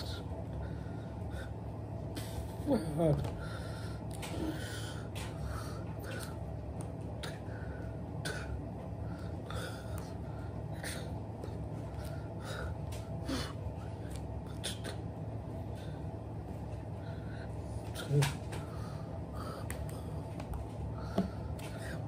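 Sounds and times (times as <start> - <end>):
steady low hum: 0.0 - 22.0
person breathing: 3.4 - 6.4, 7.2 - 14.2, 20.9 - 22.0.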